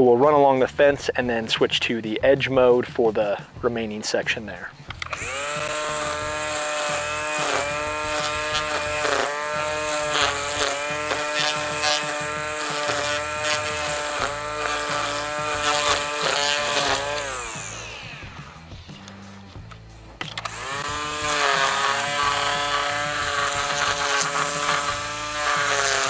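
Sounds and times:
string trimmer whine: 4.9 - 19.2, 20.1 - 26.0.

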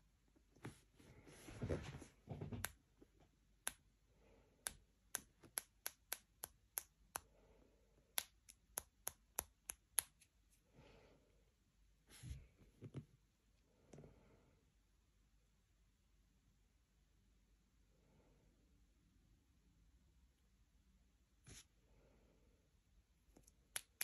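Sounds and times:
finger flicking plastic syringe: 4.6 - 7.3, 8.1 - 10.3, 23.4 - 24.0.

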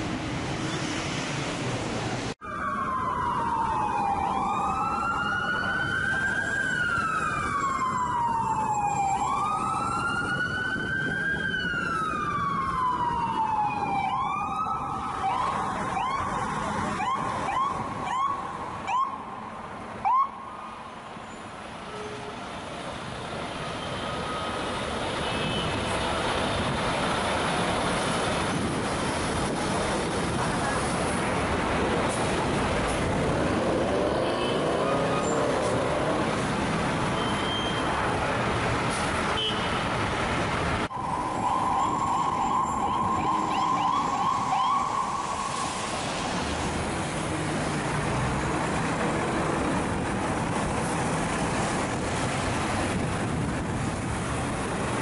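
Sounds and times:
city street traffic: 0.0 - 55.0
electronic siren wailing and chirping: 41.1 - 45.2.

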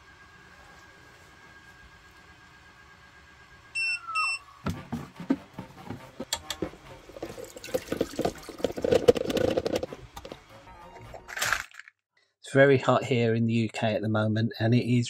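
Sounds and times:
faint whine dropping in pitch: 0.0 - 4.7
short electronic beeps: 3.8 - 4.6
clicks and clatter: 8.0 - 10.3.

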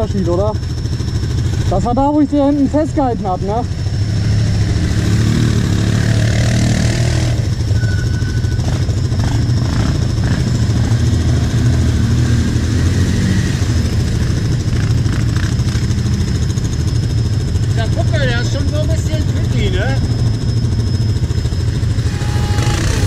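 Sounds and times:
quad bike engine idling: 0.0 - 23.0
quad bikes driving through mud: 4.0 - 16.2, 21.7 - 23.0.

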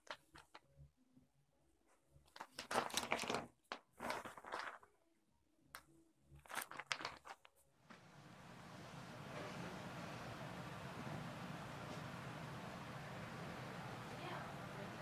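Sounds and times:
plastic bag rustling and crinkling: 2.3 - 5.0, 6.4 - 7.5.

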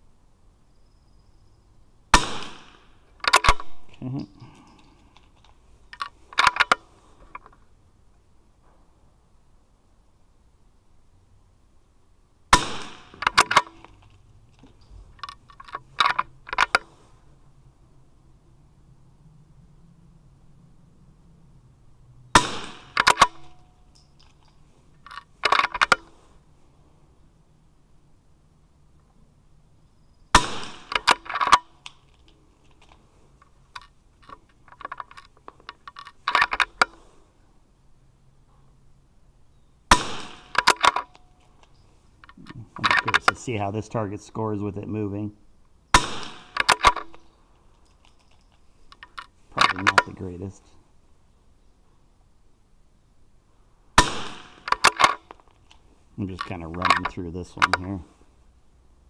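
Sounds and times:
rifle bolt metallic clicks: 2.1 - 3.8, 4.4 - 7.6, 12.5 - 16.9, 22.4 - 26.2, 30.4 - 37.0, 39.9 - 43.5, 45.9 - 50.3, 54.0 - 57.9
rifle shot: 2.1 - 3.8, 12.5 - 13.8, 22.3 - 23.6, 30.3 - 31.6, 39.9 - 41.0, 45.9 - 47.2, 54.0 - 55.2
small rattles: 2.6 - 7.8, 13.0 - 17.3, 22.7 - 26.8, 29.8 - 37.3, 45.9 - 50.7.

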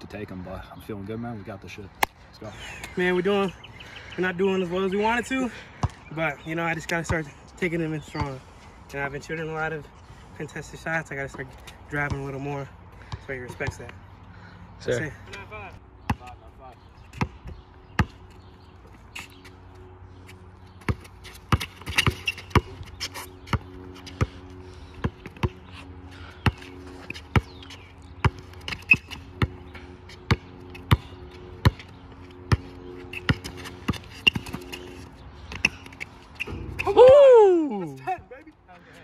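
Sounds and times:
basketball bouncing on hard court: 20.8 - 22.7, 28.2 - 29.6, 30.3 - 31.8.

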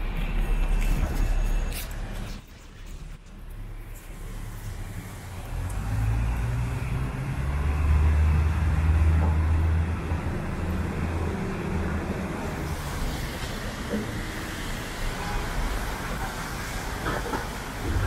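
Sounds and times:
vehicle engine rumble: 0.0 - 14.8
hiss from wet street: 1.1 - 9.8, 10.4 - 18.0.

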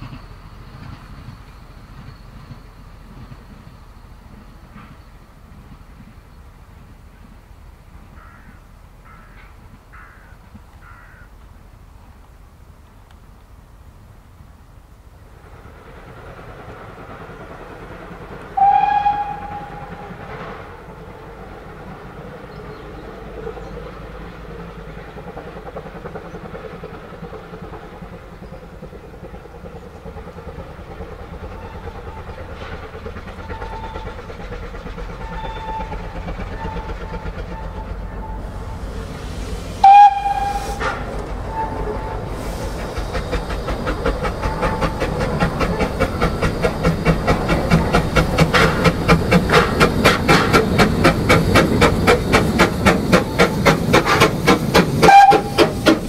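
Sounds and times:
steam locomotive exhaust beats: 0.0 - 56.0
steam locomotive whistle blast: 18.5 - 20.8, 33.4 - 34.2, 35.2 - 43.0, 54.9 - 56.0.

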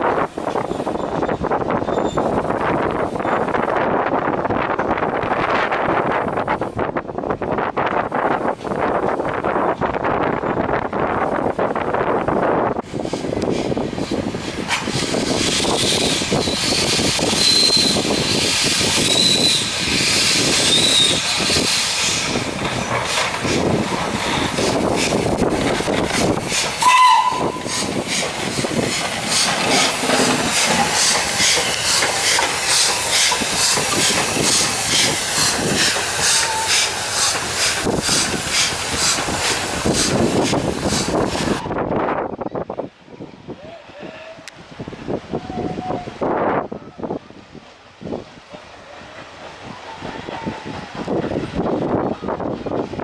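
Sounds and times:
steam hissing from locomotive: 12.8 - 41.7
locomotive whistle toot: 17.3 - 18.1, 19.0 - 19.9, 20.6 - 21.3, 26.8 - 27.8.

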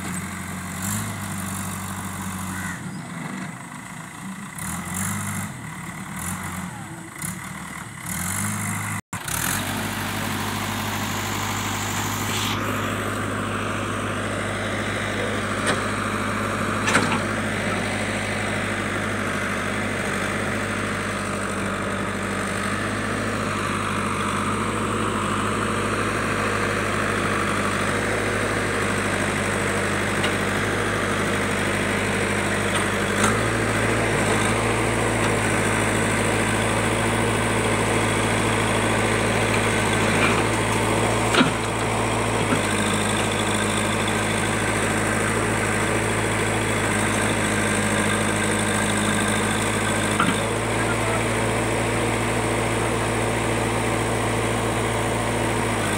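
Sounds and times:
diesel engine running: 0.0 - 55.9.

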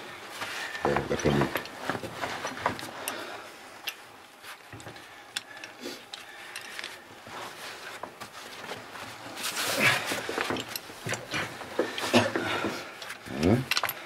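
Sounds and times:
metal climbing gear clinking: 0.6 - 14.0.

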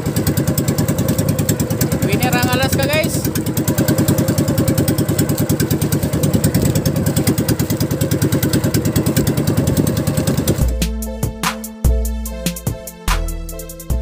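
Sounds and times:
small boat engine running: 0.0 - 12.4
music: 9.3 - 14.0.

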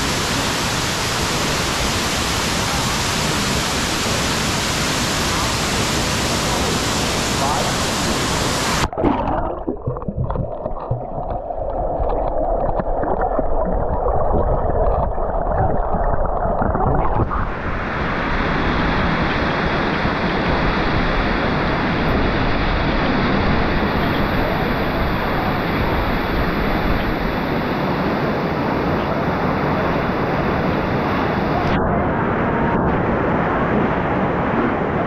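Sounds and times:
waterfall rushing: 0.0 - 9.1, 12.0 - 31.7
muffled underwater rush: 0.0 - 35.0
bubbling clicks: 8.8 - 17.4.

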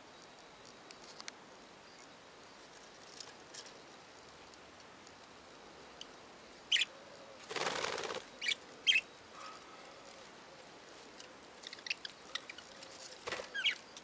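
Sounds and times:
wings flapping: 7.4 - 8.3, 13.1 - 13.8
budgerigars chirping: 8.4 - 9.1, 13.5 - 13.8.

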